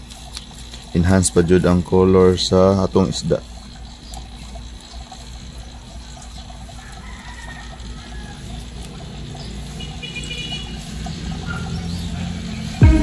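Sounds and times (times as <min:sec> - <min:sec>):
steady low hum: 0:07.8 - 0:13.0
bird calls: 0:09.2 - 0:12.8.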